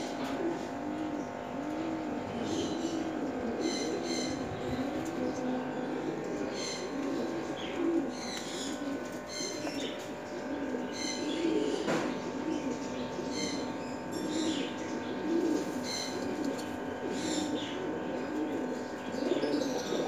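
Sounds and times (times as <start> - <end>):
pigeons cooing: 0.0 - 20.0
small birds chirping: 2.4 - 5.7, 6.4 - 17.9.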